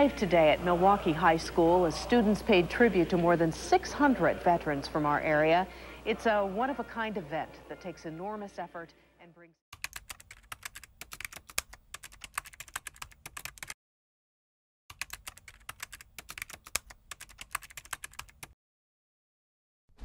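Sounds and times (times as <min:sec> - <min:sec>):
rapid keyboard key clicks: 0:09.8 - 0:13.8, 0:14.9 - 0:18.6.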